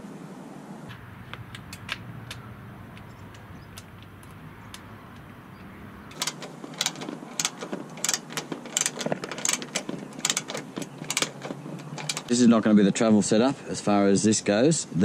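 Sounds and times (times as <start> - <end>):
ratchet spanner clicking: 6.0 - 12.3.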